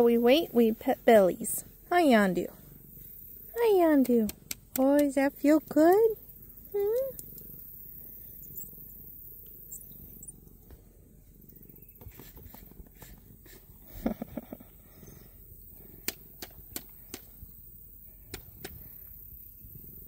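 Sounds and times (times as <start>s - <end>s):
sharp ticks: 3.9s - 6.2s, 6.9s - 7.6s.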